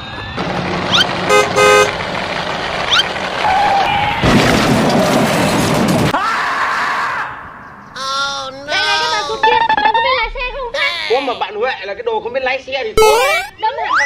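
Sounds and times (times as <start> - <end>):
cartoon chirps: 9.3 - 10.2, 13.0 - 14.0.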